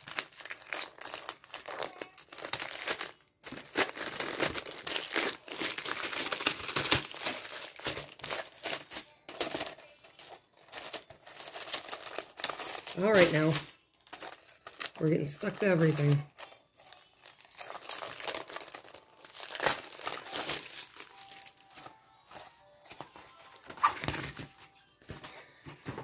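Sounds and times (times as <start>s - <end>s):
plastic sleeve crinkling: 0.0s - 26.0s.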